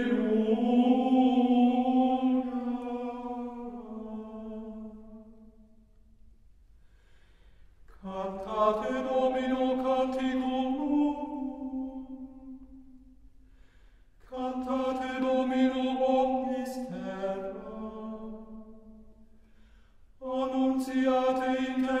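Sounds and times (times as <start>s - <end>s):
lower voice singing harmony: 0.0s - 5.4s, 7.9s - 12.6s, 14.3s - 18.8s, 20.2s - 22.0s
slow sung chant: 0.0s - 5.9s, 7.8s - 13.2s, 14.1s - 22.0s.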